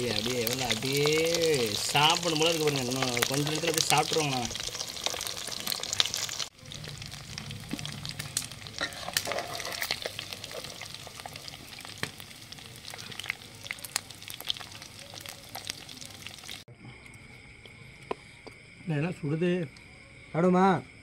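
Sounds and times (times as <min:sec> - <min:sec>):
food deep-frying in hot oil: 0:00.0 - 0:16.7.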